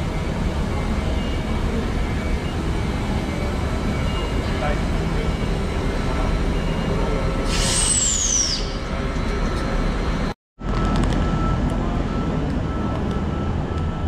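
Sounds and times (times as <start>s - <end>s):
low rumble of trains: 0.0s - 14.0s
air brakes hissing with whistle: 6.8s - 9.0s.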